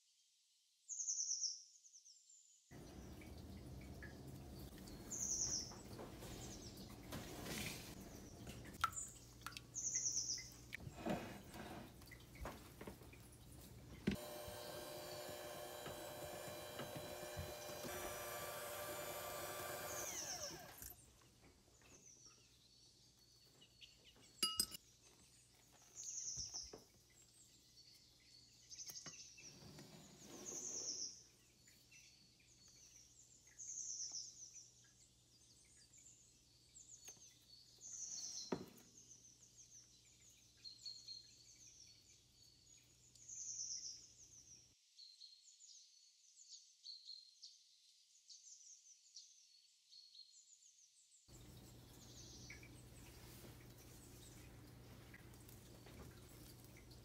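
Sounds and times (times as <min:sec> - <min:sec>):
electric hand mixer whipping cream: 0:14.1 - 0:20.9
glass clink: 0:24.4 - 0:24.8.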